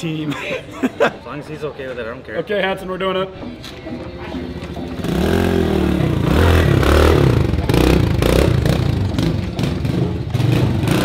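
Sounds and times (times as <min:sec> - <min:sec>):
dirt bike engine revving: 0:05.0 - 0:11.0.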